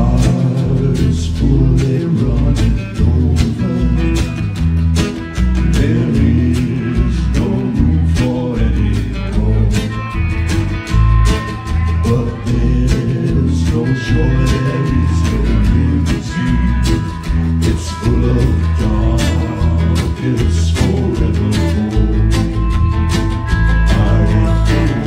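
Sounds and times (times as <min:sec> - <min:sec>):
man singing: 0:00.0 - 0:04.6, 0:05.5 - 0:10.3, 0:11.7 - 0:22.9, 0:23.5 - 0:25.0
drums keeping a steady beat: 0:00.0 - 0:25.0
electric guitars: 0:00.0 - 0:25.0
strummed acoustic guitar: 0:00.0 - 0:25.0.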